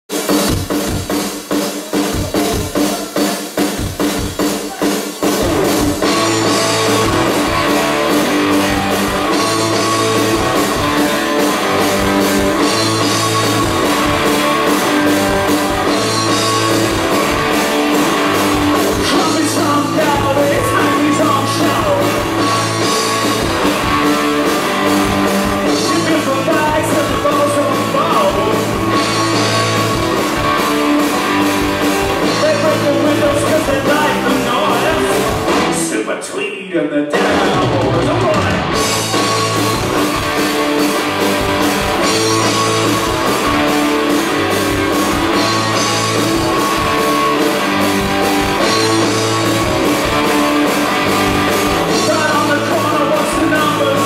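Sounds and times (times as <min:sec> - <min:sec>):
rock band playing: 0:00.0 - 0:36.4, 0:37.0 - 0:54.0
person singing: 0:18.7 - 0:22.8, 0:25.5 - 0:29.2, 0:32.2 - 0:38.8, 0:50.2 - 0:54.0.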